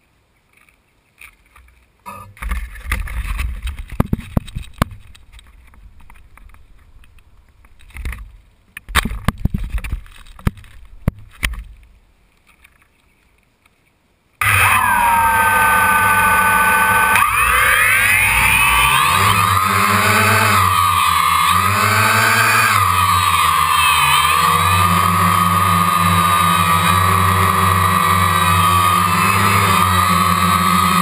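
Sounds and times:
drone motors whining: 0:14.4 - 0:31.0.

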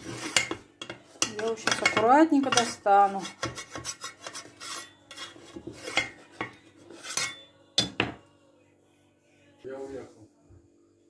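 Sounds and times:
scraping against baking pan: 0:00.0 - 0:07.5.

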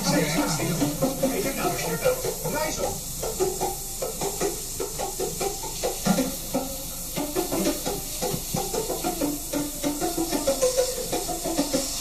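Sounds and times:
radio playing: 0:00.0 - 0:03.6
airbrush hissing: 0:00.0 - 0:12.0.

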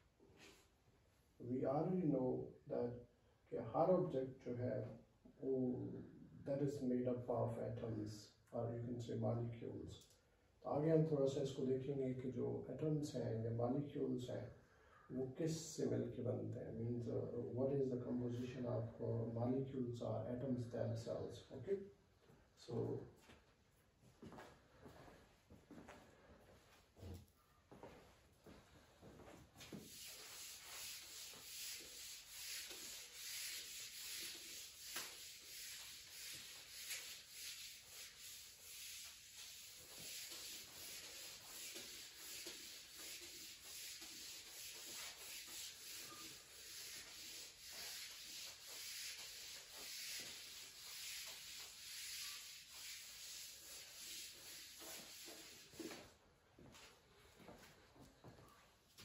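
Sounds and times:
eraser rubbing on whiteboard: 0:29.6 - 0:56.0.

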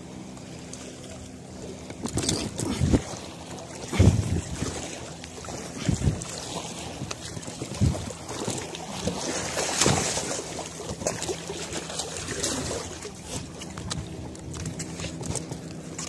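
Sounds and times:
steady engine drone: 0:00.0 - 0:16.0
water sloshing against rocks: 0:00.6 - 0:16.0
wind on microphone: 0:02.1 - 0:03.2, 0:03.9 - 0:04.8, 0:05.8 - 0:08.2.

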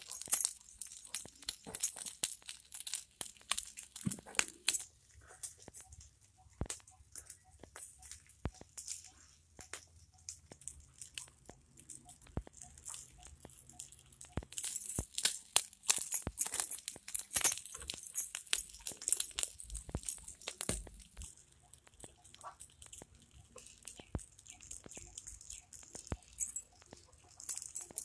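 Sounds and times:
wood fire crackling: 0:00.0 - 0:28.0.

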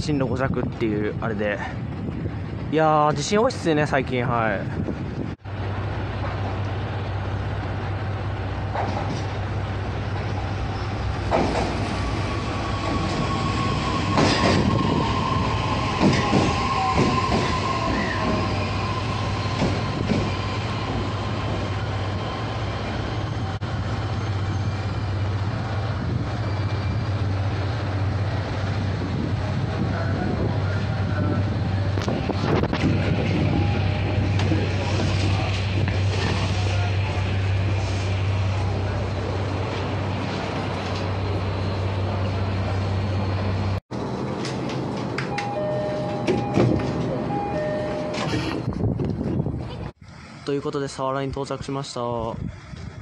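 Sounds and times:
train low hum: 0:00.0 - 0:53.0
wheel and brake squeal: 0:12.7 - 0:21.3, 0:22.2 - 0:27.4, 0:47.3 - 0:48.7
train wheels knocking on joints: 0:16.0 - 0:18.4.

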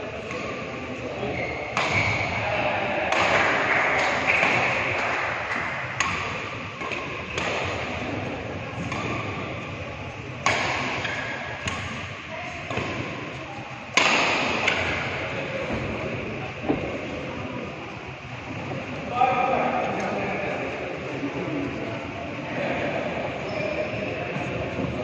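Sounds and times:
rackets hitting shuttlecock: 0:00.2 - 0:00.8, 0:01.7 - 0:02.4, 0:03.0 - 0:15.9.

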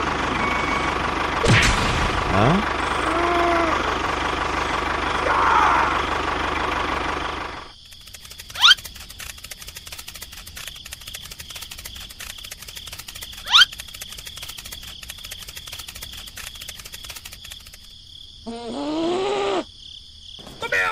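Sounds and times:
tractor engine running: 0:00.0 - 0:18.0
fast even clicking: 0:07.8 - 0:17.9
sharp rising squeak: 0:13.4 - 0:13.8.

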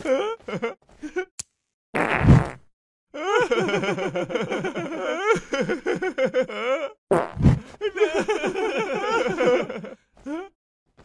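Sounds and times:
fart sound effect: 0:02.0 - 0:02.7, 0:07.1 - 0:07.6
cartoon characters laughing: 0:03.2 - 0:07.0, 0:07.8 - 0:10.0.

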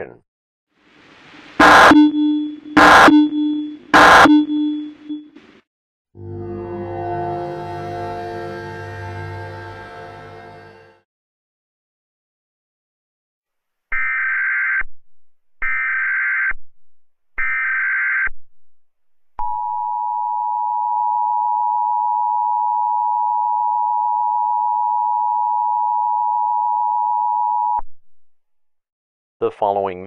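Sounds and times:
harsh buzzing data bursts: 0:01.6 - 0:05.2
two-tone attention signal: 0:01.6 - 0:05.4.

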